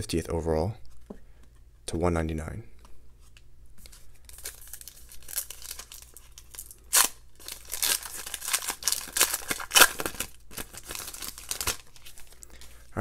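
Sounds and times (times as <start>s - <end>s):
wrapper tearing and crinkling: 4.2s - 12.7s.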